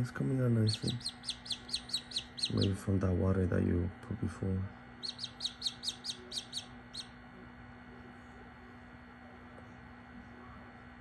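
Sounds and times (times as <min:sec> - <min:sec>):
faint steady hum: 0:00.0 - 0:11.0
chick peeping: 0:00.6 - 0:02.8, 0:05.0 - 0:07.2.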